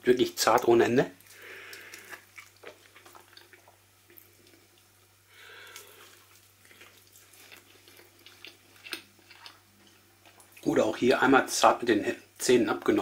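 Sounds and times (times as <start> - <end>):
person chewing: 1.2 - 10.6.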